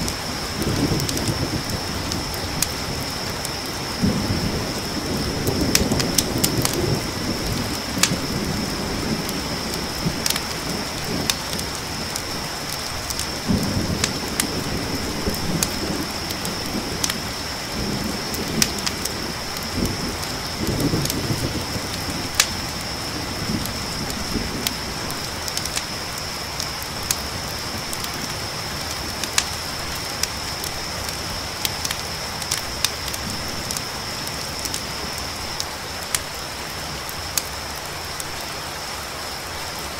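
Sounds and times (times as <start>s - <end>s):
sharp pops and ticks: 0.0s - 3.7s, 5.5s - 6.8s, 7.4s - 8.3s, 9.2s - 14.6s, 15.2s - 17.2s, 17.8s - 20.0s, 20.8s - 36.4s, 37.1s - 38.4s
crickets chirring: 0.0s - 39.9s
steady rain: 0.0s - 39.9s
low rolls of thunder: 0.1s - 26.1s.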